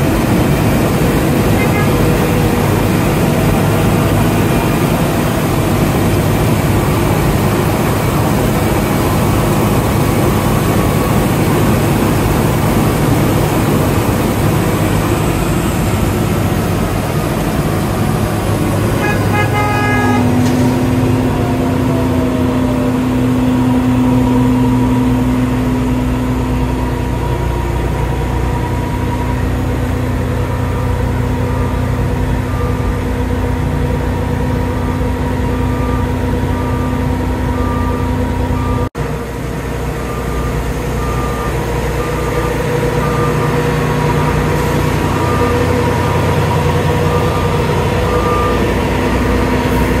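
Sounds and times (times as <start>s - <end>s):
heavy machinery running: 0.0s - 50.0s
reversing alarm beeping: 16.6s - 38.9s, 39.8s - 50.0s
horn toot: 19.0s - 20.9s.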